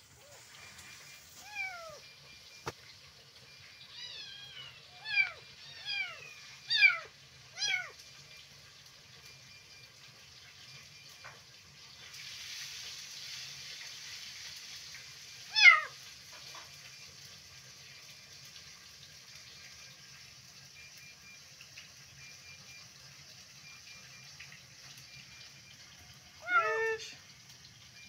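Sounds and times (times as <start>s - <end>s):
kitten meowing: 1.4s - 2.0s, 3.9s - 7.9s, 15.5s - 16.0s, 26.4s - 27.1s.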